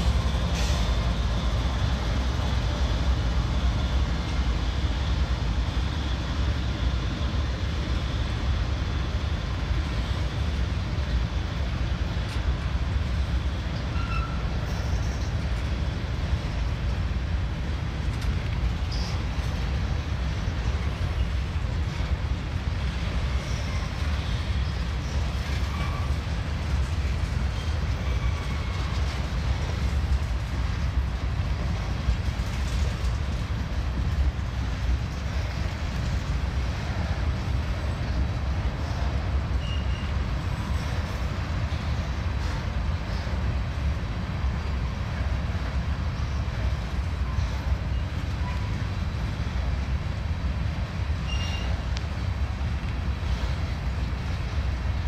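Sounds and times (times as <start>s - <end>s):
train wheels rumbling on rail: 0.0s - 55.0s
wheels squealing: 51.2s - 51.8s.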